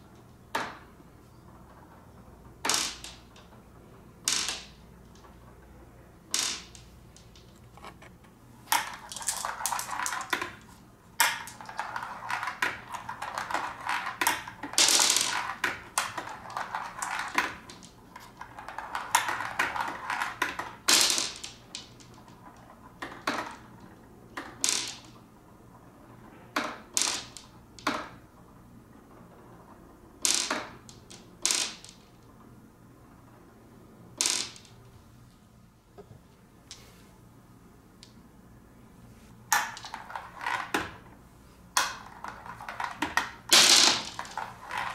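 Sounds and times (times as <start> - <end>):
marbles clattering down plastic chutes: 2.6 - 3.5, 8.7 - 25.2, 26.6 - 28.2, 30.2 - 32.0, 34.2 - 34.8, 39.5 - 41.0, 41.8 - 44.9.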